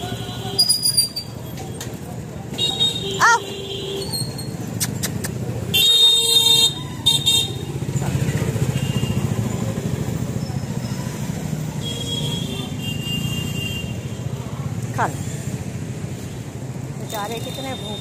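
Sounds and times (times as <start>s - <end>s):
motorcycle and street traffic: 0.0s - 18.0s
vehicle horn honking: 5.7s - 7.6s, 11.8s - 14.0s.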